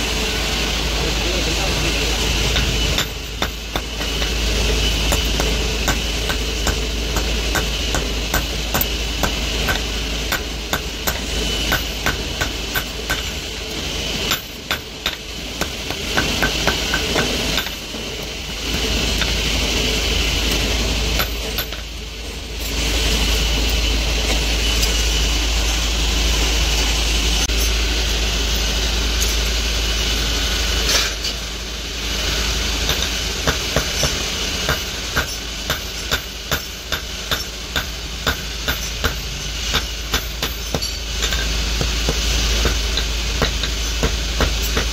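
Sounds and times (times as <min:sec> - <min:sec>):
steady mechanical hum: 0:00.0 - 0:44.9
hammer striking hot metal on anvil: 0:02.4 - 0:22.0, 0:32.3 - 0:44.9.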